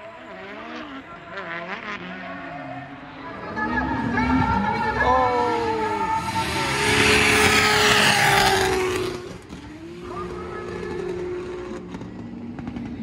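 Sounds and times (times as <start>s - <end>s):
car engine revving high: 0.3s - 13.0s.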